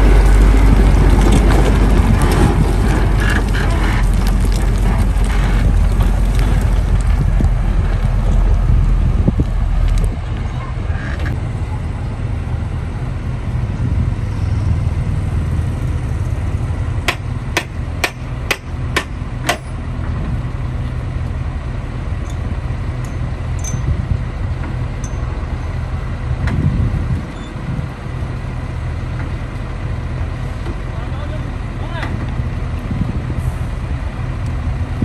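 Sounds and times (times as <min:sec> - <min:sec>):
diesel engines idling: 0:00.0 - 0:35.0
sharp metallic knocks: 0:17.1 - 0:19.8.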